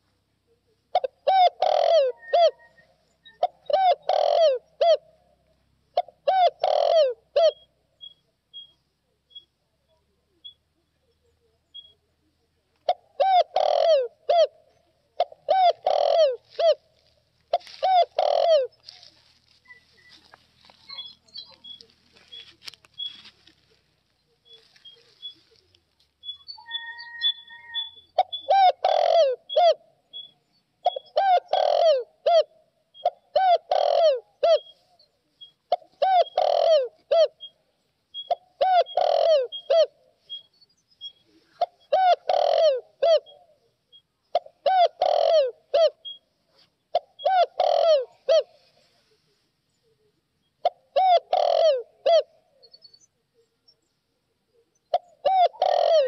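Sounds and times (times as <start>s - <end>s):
dove cooing: 0.0s - 7.8s, 12.8s - 25.7s, 26.6s - 53.5s, 54.5s - 56.0s
faint high peeps: 1.4s - 4.2s, 7.4s - 12.3s, 17.7s - 31.2s, 37.4s - 42.5s.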